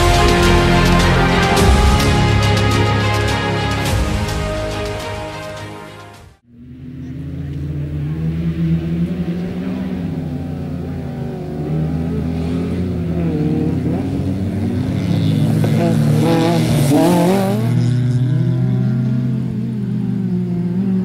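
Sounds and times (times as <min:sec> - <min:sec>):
rally car engine revving: 0:06.5 - 0:21.0.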